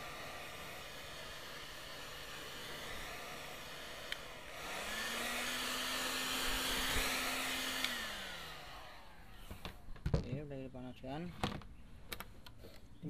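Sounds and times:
heat gun blowing: 0.0 - 9.9
heat gun switch click: 4.1 - 4.3, 7.7 - 8.0.

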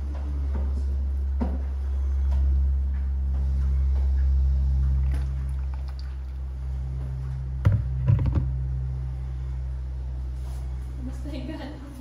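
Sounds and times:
steady low hum: 0.0 - 12.0
water pouring from kettle: 5.0 - 6.4
kettle knocks: 7.6 - 8.5.

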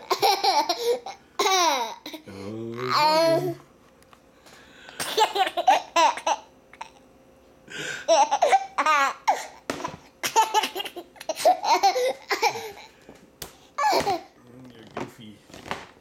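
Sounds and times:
baby laughing: 0.0 - 2.2, 5.0 - 7.0, 8.1 - 12.9, 13.8 - 14.3.

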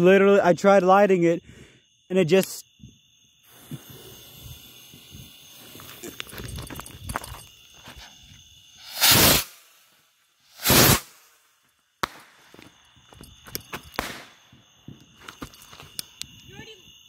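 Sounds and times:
bottle rocket whoosh: 8.8 - 9.8, 10.5 - 11.3
sharp pop: 12.0 - 12.4, 14.0 - 14.4.

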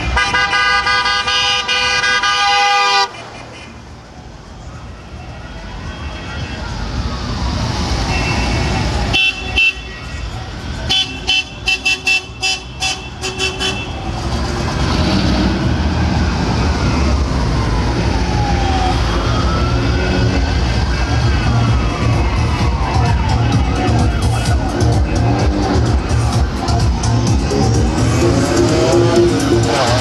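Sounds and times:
car horns honking: 0.0 - 3.8, 8.0 - 14.1
car engines rumbling: 0.0 - 30.0
siren wailing: 15.7 - 29.7.

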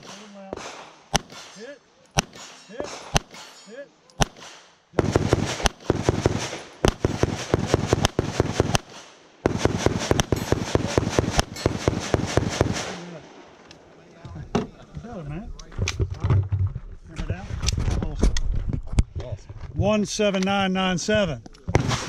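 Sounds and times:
handgun shots: 0.0 - 3.6, 4.2 - 7.1.

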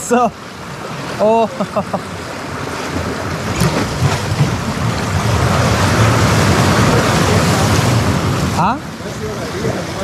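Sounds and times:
sea surf washing against shore: 0.0 - 10.0
wind on microphone: 2.5 - 10.0.

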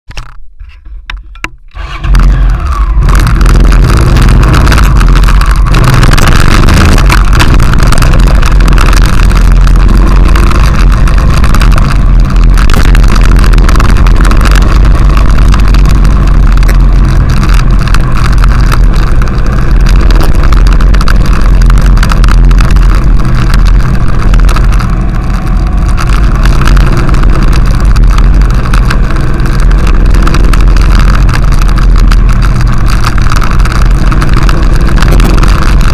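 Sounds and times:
motorcycle engine running: 1.2 - 35.9
wind rush on microphone: 1.8 - 35.9.

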